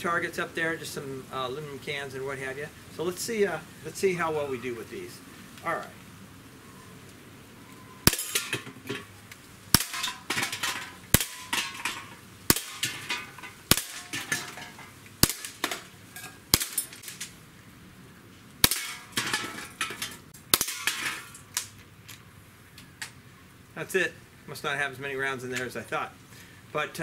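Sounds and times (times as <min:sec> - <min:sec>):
pellets hitting metal cans: 0:08.1 - 0:09.1, 0:09.7 - 0:17.3, 0:18.6 - 0:21.6.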